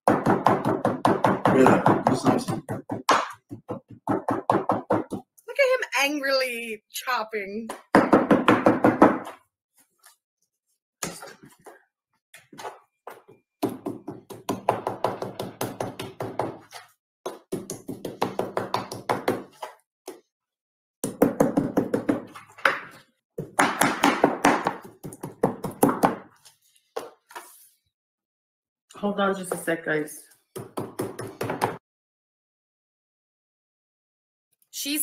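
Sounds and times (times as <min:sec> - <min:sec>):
knife chopping on wooden board: 0:00.0 - 0:05.3, 0:12.6 - 0:20.2, 0:21.0 - 0:26.4, 0:30.6 - 0:31.8.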